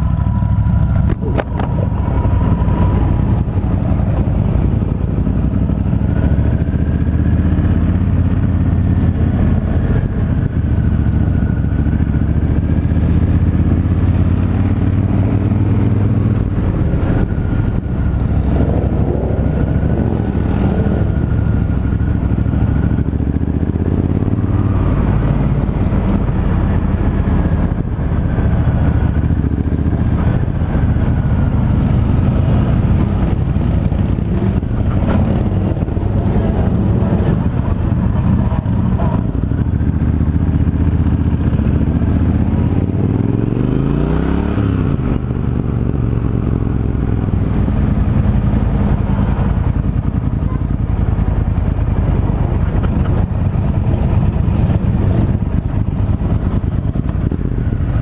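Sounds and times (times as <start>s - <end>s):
motorcycle engine running: 0.0s - 58.0s.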